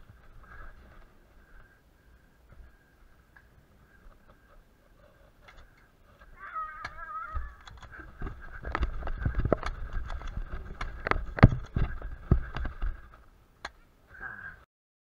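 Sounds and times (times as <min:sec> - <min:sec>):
running footsteps on dry ground: 0:07.3 - 0:13.2.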